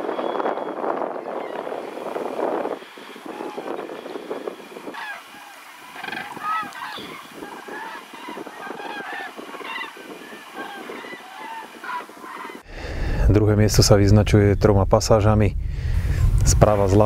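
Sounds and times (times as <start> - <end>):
geese honking: 0.0 - 12.6.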